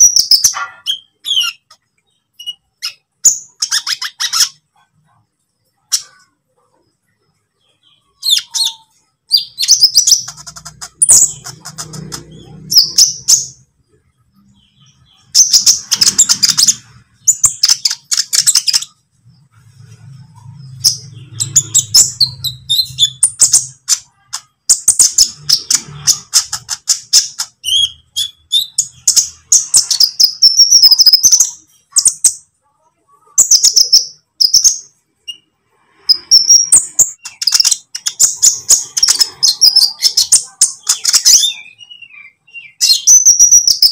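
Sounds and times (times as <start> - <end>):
bird twittering: 7.6 - 13.7, 20.3 - 32.4.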